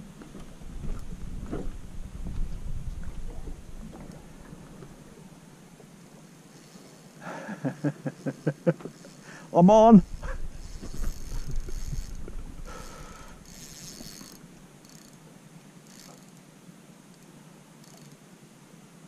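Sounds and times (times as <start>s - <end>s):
low handling rumble: 0.0s - 5.5s, 9.8s - 14.8s
fishing reel buzzing and clicking: 6.2s - 7.2s, 8.4s - 9.3s, 9.9s - 15.2s, 15.8s - 16.5s, 17.1s - 18.2s.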